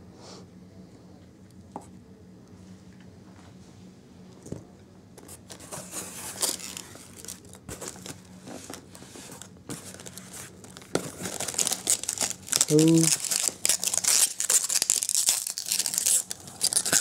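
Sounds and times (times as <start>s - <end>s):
packing peanuts rustling: 5.3s - 17.0s
plastic bag crinkling: 5.5s - 17.0s.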